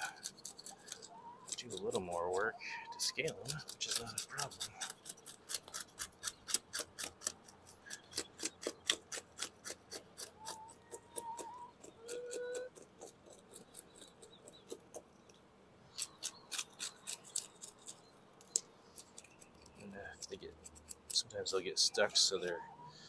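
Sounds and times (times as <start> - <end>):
knife scraping fish scales: 0.0 - 10.6, 18.9 - 21.6.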